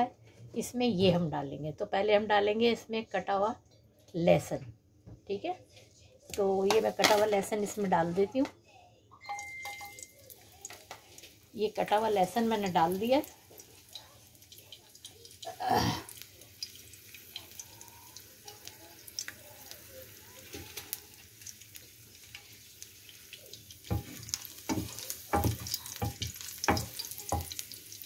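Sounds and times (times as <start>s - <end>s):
garlic frying in oil: 6.3s - 8.4s, 9.8s - 28.0s.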